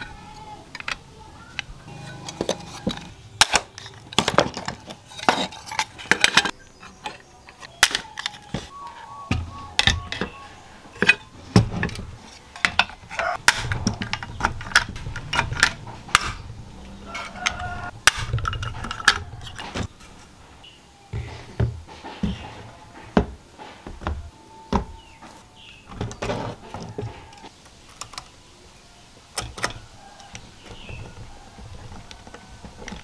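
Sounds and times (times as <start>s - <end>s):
metal parts clinking on wood: 0.0s - 8.7s.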